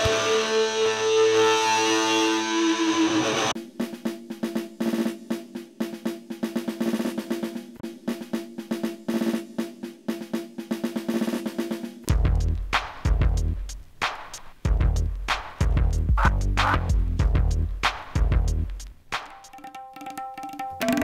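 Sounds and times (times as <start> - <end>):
electric guitar chords: 0.0 - 3.5
fast drum pattern: 3.6 - 21.0.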